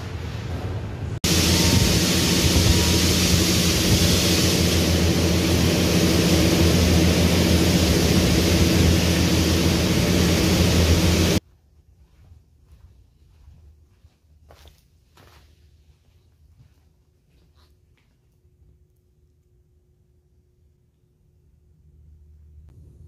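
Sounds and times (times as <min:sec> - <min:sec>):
loud machinery noise: 0:00.0 - 0:11.4
low hum: 0:00.0 - 0:14.5, 0:18.4 - 0:23.0.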